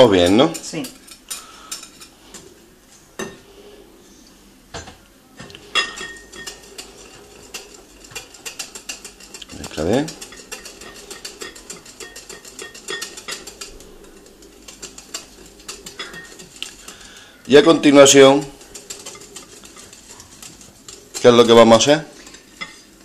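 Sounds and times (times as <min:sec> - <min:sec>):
bowls knocking: 0:04.8 - 0:22.8
whisk clicking against glass bowl: 0:05.7 - 0:22.8.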